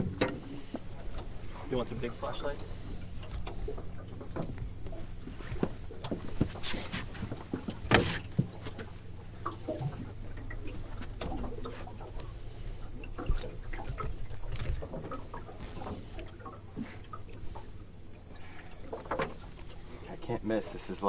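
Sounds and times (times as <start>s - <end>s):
low hum: 0.0s - 20.5s
gear knocking in a boat: 0.0s - 21.0s
high-pitched insect drone: 0.7s - 21.0s.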